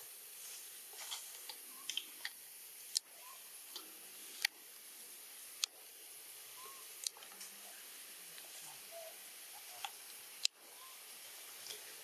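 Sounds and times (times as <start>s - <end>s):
steady high hiss: 0.0s - 12.0s
faint short chirps: 6.6s - 6.9s.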